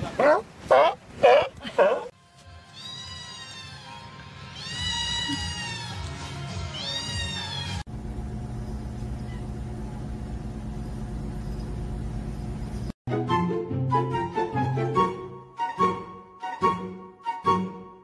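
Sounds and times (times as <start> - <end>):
background music: 2.2 - 7.8, 13.1 - 18.0
steady low hum: 7.9 - 12.9.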